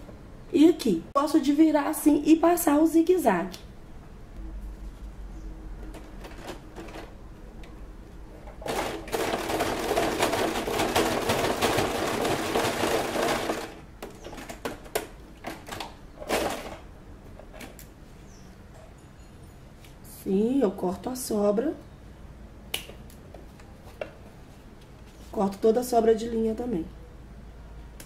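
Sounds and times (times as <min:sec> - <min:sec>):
sewing machine stitching: 0:08.6 - 0:13.8.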